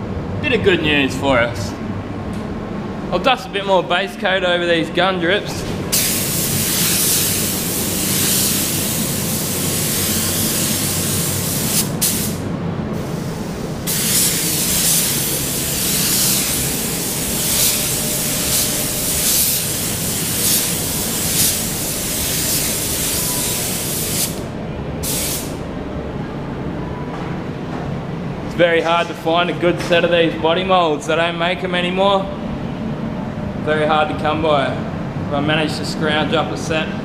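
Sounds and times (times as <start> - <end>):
paint spray gun hissing: 6.0 - 12.4, 13.0 - 24.4, 25.0 - 25.6.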